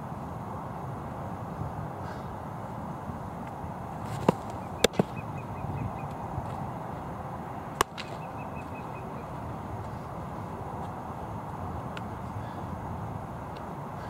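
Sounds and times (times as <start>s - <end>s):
outdoor background hiss: 0.0s - 14.0s
ball popping into leather mitt: 4.1s - 5.2s, 7.8s - 8.2s.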